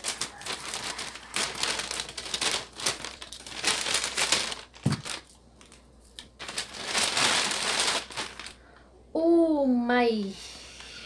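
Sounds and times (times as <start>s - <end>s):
plastic wrapping crinkling: 0.0s - 8.7s.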